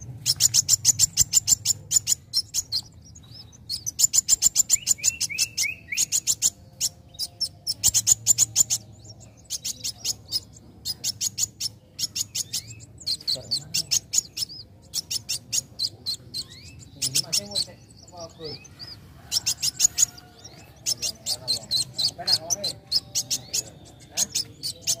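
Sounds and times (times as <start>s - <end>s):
bird singing high chirps: 0.0s - 25.0s.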